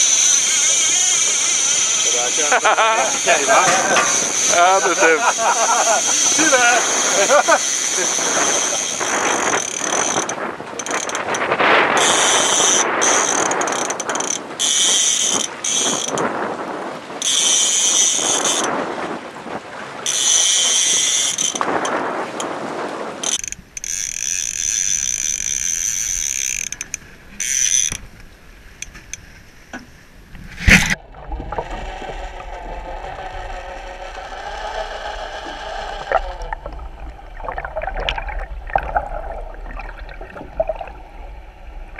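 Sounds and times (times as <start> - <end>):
fishing reel drag ratcheting: 0.0 - 16.3, 17.2 - 18.8, 20.0 - 22.5, 23.2 - 28.0, 30.8 - 37.2
muffled underwater rumble: 30.4 - 41.9.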